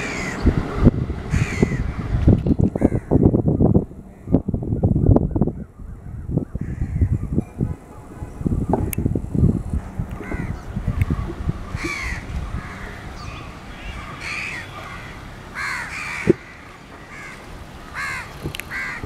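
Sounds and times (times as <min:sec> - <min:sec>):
crows cawing: 0:00.0 - 0:00.5, 0:01.3 - 0:01.9, 0:02.8 - 0:03.2, 0:06.0 - 0:07.3, 0:10.2 - 0:10.6, 0:11.7 - 0:13.1, 0:13.7 - 0:19.0.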